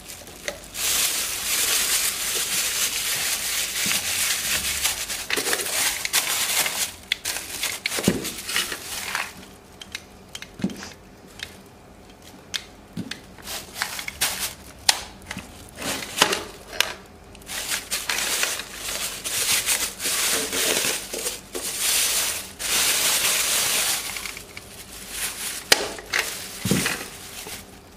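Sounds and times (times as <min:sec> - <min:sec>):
plastic bags crinkling: 0:00.0 - 0:27.9.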